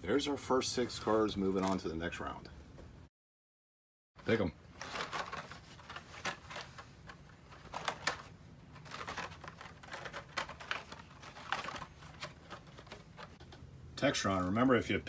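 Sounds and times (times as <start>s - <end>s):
plastic blister packs clicking: 6.2s - 13.4s.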